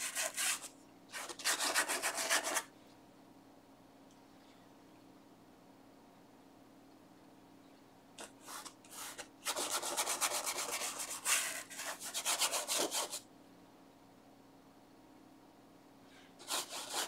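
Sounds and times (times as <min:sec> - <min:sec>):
bristle brush scrubbing canvas: 0:00.0 - 0:02.6, 0:16.4 - 0:17.0.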